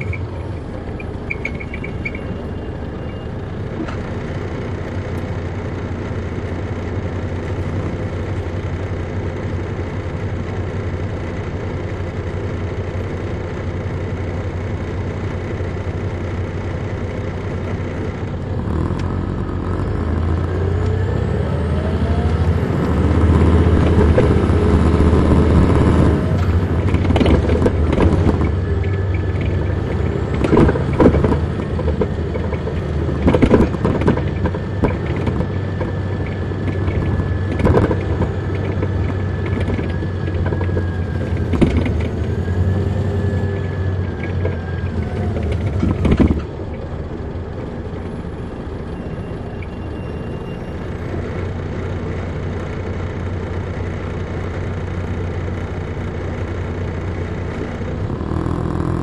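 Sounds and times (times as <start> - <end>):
diesel coach engine: 0.0 - 59.0
engine whine: 0.0 - 59.0
knocks and rattles: 23.7 - 42.2, 44.1 - 46.5.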